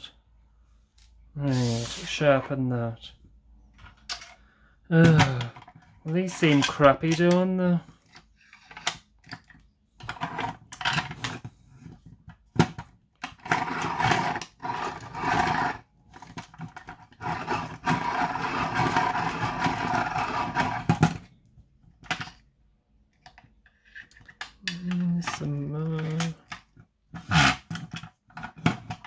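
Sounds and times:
pencil sharpener grinding pencil: 13.4s - 21.2s.

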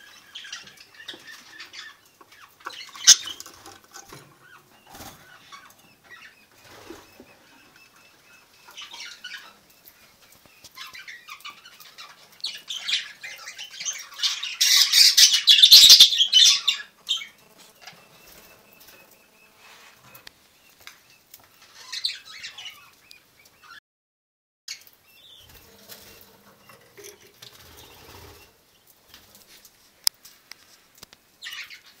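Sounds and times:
birds fluttering wings: 27.4s - 29.7s.

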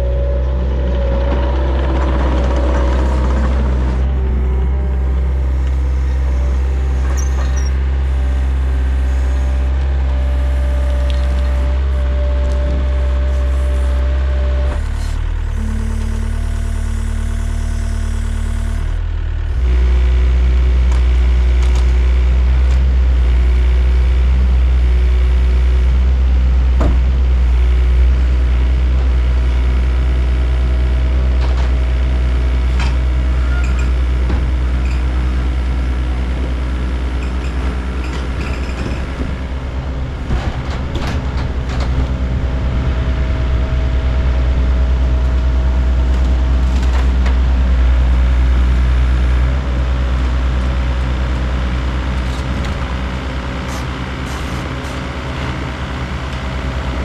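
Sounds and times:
diesel engines running under load: 0.0s - 57.0s
sharp clicks and creaks: 0.8s - 7.9s, 10.7s - 11.6s, 32.8s - 35.7s, 37.1s - 43.1s.

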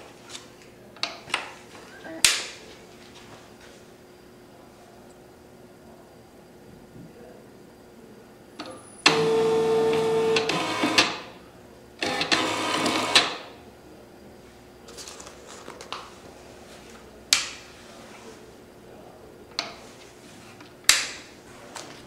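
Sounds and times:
printer motor whine: 8.6s - 11.4s, 12.0s - 13.6s
label printer feeding labels: 9.0s - 11.3s, 12.0s - 13.6s.

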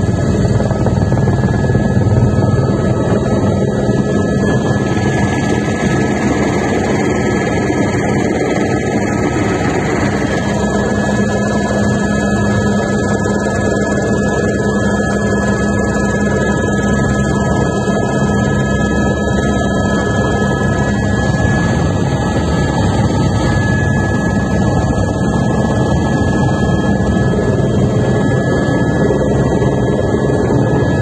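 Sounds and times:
helicopter engine and rotor drone: 0.0s - 31.0s.

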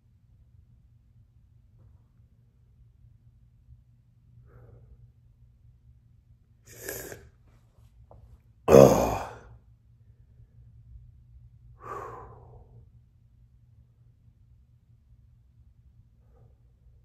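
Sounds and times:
man sighing loudly: 8.7s - 9.5s
man breathing hard: 11.8s - 12.9s.

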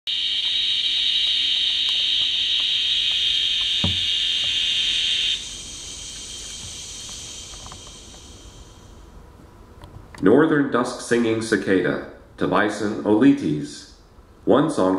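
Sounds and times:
cicada buzzing: 0.1s - 9.3s
soft thump: 3.8s - 4.1s.

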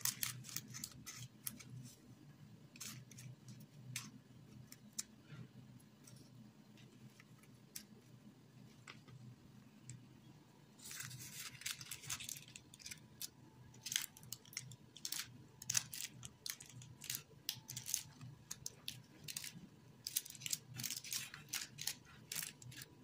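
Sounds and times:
paper cupcake liners rustling: 0.0s - 2.0s, 2.7s - 5.4s, 10.8s - 23.0s.

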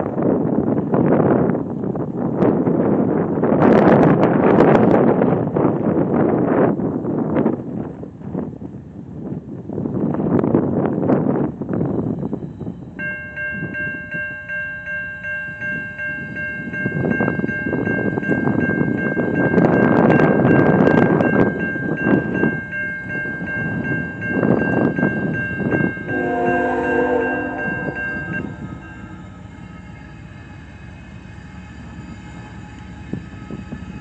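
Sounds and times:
wind buffeting microphone: 0.0s - 34.0s
railroad crossing bell ringing: 11.4s - 30.7s
locomotive horn: 26.1s - 29.2s.

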